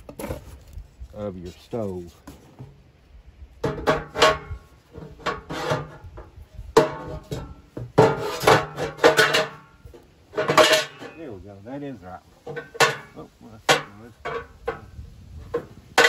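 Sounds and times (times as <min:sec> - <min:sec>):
metal plates clanking in stove: 0:03.6 - 0:11.2, 0:12.4 - 0:16.0.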